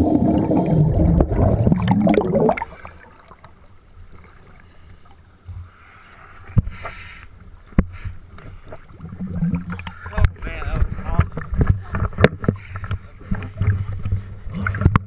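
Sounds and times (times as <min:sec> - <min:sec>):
bubbles gurgling underwater: 0:00.0 - 0:03.5, 0:08.9 - 0:10.0
faint water lapping: 0:02.6 - 0:14.9.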